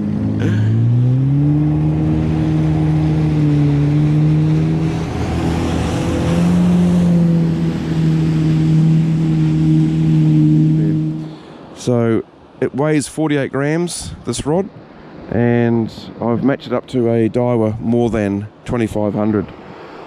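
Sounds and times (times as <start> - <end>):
jet ski engine accelerating: 0.0 - 12.2.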